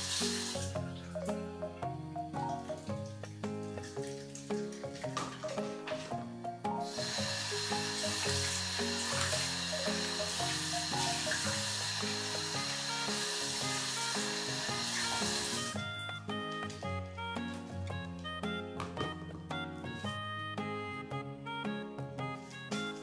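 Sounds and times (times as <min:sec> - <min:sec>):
sizzling hiss: 0:00.0 - 0:00.8, 0:06.8 - 0:15.8
light background music: 0:00.0 - 0:23.0.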